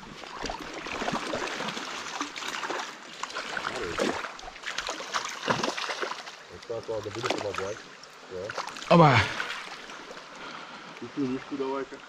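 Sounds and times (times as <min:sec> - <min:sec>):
small water splashes: 0:00.0 - 0:12.0
stream running over stones: 0:00.0 - 0:12.0.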